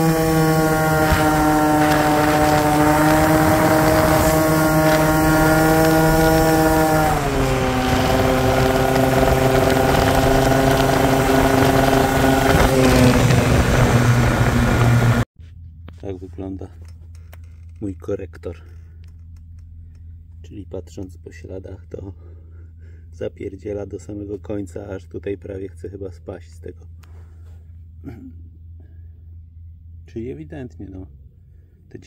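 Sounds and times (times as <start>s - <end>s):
wind noise on microphone: 0.0s - 15.2s
scooter engine at high revs: 0.0s - 15.3s.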